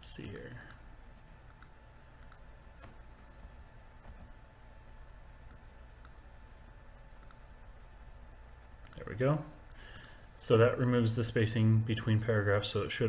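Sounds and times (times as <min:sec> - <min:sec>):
faint steady hum: 0:00.0 - 0:13.0
computer mouse clicking: 0:01.5 - 0:03.0, 0:05.4 - 0:06.2, 0:07.2 - 0:07.4, 0:08.8 - 0:09.0, 0:09.9 - 0:10.2.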